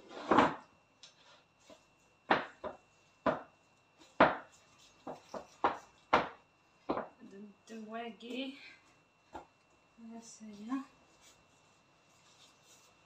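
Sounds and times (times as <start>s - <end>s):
knife chopping through dough: 2.3s - 7.2s.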